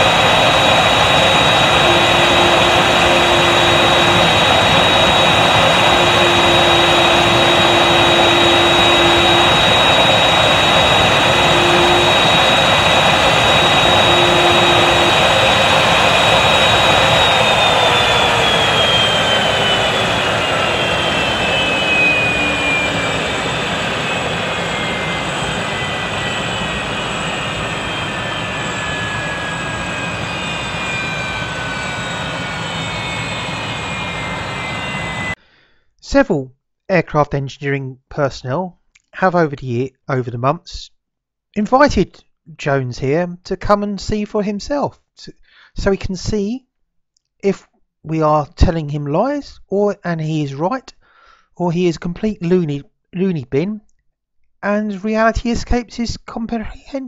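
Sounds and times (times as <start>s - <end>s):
jet engine roaring and whining: 0.0s - 35.4s.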